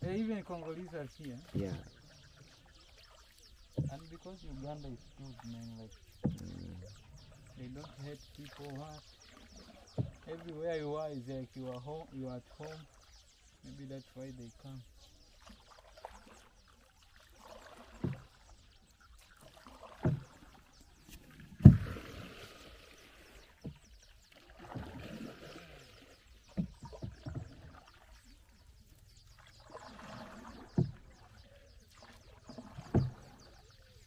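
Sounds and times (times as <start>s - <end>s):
paddle knocking on canoe hull: 0.0s - 0.3s, 1.3s - 2.6s, 3.3s - 10.5s, 17.4s - 18.4s, 19.4s - 22.4s, 23.0s - 33.7s
water swishing off paddle: 0.0s - 10.6s, 14.8s - 34.0s.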